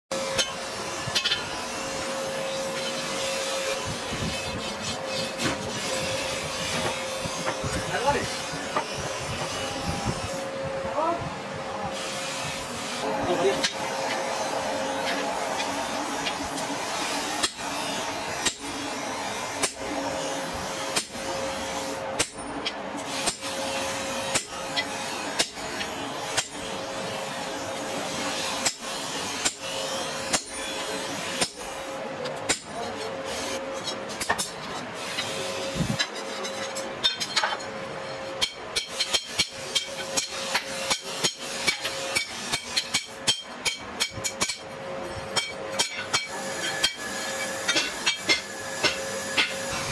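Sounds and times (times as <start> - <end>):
hammer striking chisel on anvil: 18.4 - 18.8, 20.9 - 21.4, 22.2 - 23.6, 30.3 - 33.0, 38.4 - 49.8.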